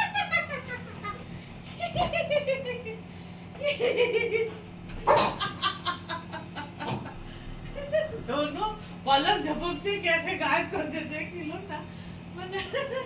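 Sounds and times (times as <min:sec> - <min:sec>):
woman laughing: 0:00.0 - 0:08.6, 0:12.4 - 0:13.0.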